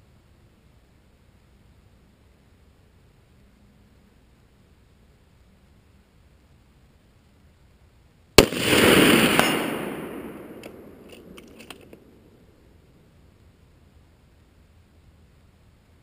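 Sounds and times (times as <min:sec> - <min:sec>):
rifle shot with rolling echo: 0:08.4 - 0:12.8
faint clicks: 0:10.5 - 0:12.2.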